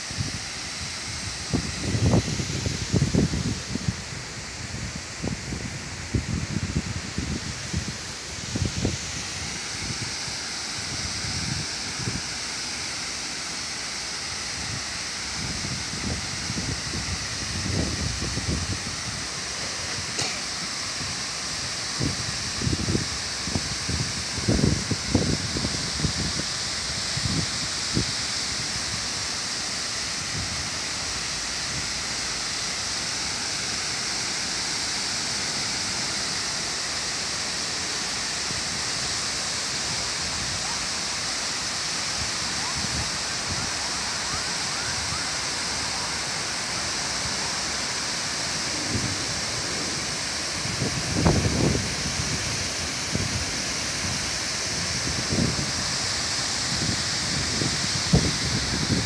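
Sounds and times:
fountain water rushing: 0:00.0 - 0:59.0
wind buffeting microphone: 0:00.1 - 0:12.3, 0:14.7 - 0:21.2, 0:42.2 - 0:47.7, 0:48.4 - 0:59.0.

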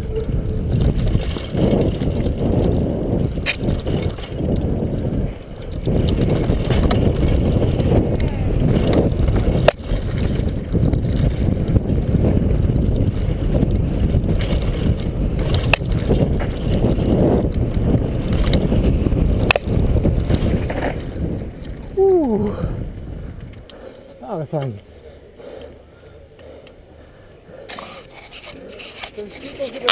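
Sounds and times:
mountain bike rumble and rattle: 0:00.0 - 0:24.8, 0:27.4 - 0:29.9
wind buffeting microphone: 0:00.0 - 0:24.8
bike hitting bumps knocks: 0:05.9 - 0:11.7.

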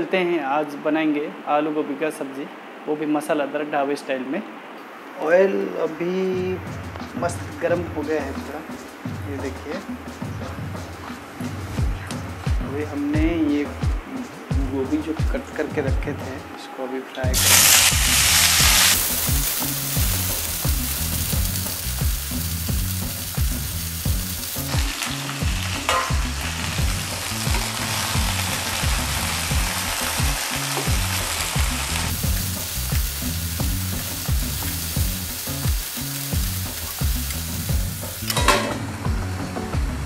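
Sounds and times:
background music beat: 0:06.4 - 0:16.6, 0:17.3 - 0:40.0
vegetables sizzling in hot oil: 0:17.3 - 0:39.0.

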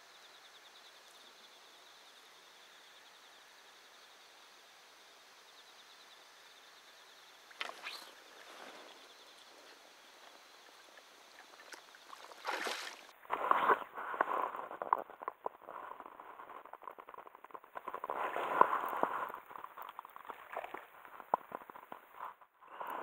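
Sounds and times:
water splashing and crackling: 0:07.5 - 0:23.0.

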